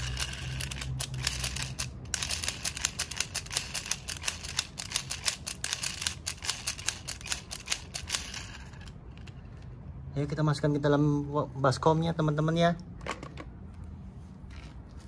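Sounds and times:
toy mechanism clicking rapidly: 0.0s - 9.4s.

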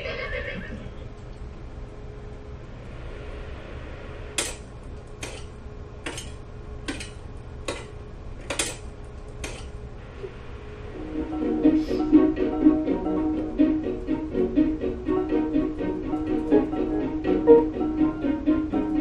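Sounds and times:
faint steady hum: 0.0s - 19.0s
plucked-string folk music: 11.0s - 19.0s.

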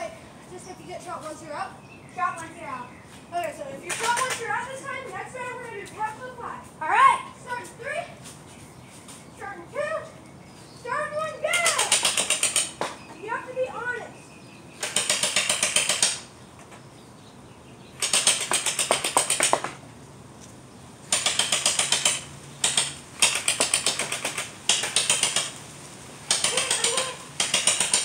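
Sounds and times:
gel blaster rapid clicks: 11.6s - 12.8s, 14.8s - 16.3s, 18.0s - 19.6s, 21.1s - 25.6s, 26.2s - 28.0s.

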